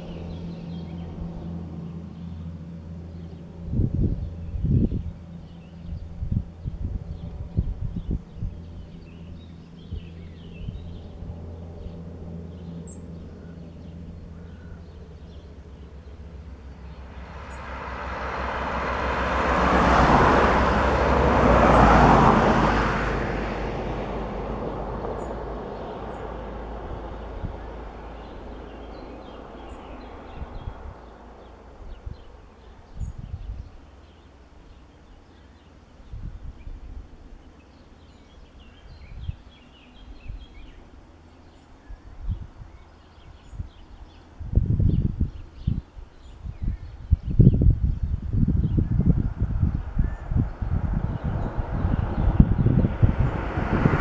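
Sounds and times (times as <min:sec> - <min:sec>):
vehicle passing by: 0:00.0 - 0:35.7, 0:47.6 - 0:54.0
low engine hum: 0:00.0 - 0:54.0.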